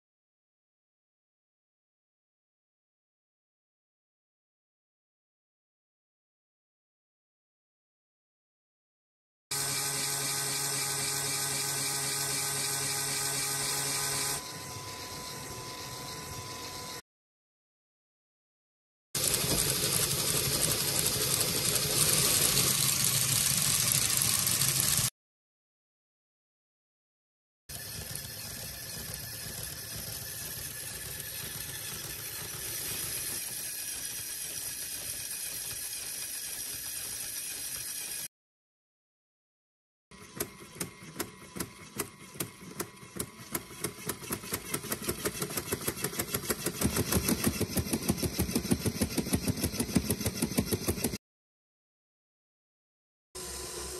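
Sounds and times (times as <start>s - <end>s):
toy motor and gears whirring: 9.5s - 17.0s, 19.2s - 25.1s, 27.7s - 38.3s, 40.1s - 51.2s
plastic mechanical clatter: 40.2s - 51.2s.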